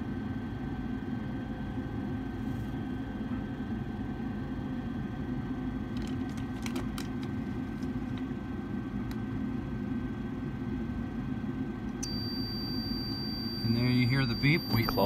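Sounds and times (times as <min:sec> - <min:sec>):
blower humming: 0:11.9 - 0:15.0.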